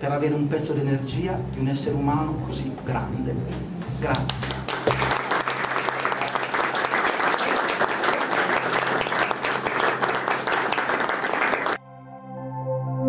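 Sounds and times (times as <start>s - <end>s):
crowd applauding: 4.3s - 11.8s.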